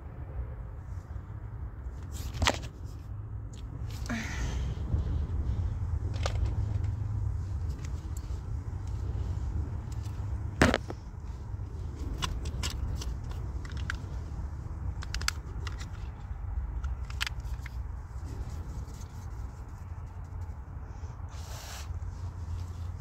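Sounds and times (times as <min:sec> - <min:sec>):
steady low rumble: 0:00.0 - 0:23.0
plastic cases clicking: 0:12.1 - 0:14.1, 0:14.9 - 0:16.2.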